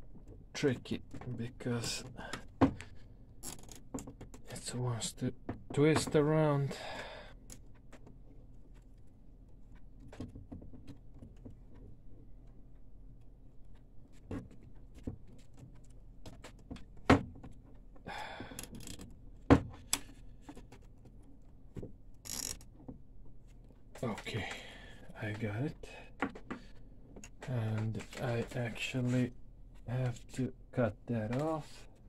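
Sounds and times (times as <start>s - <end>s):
sharp zip tie clicks: 22.2s - 22.6s.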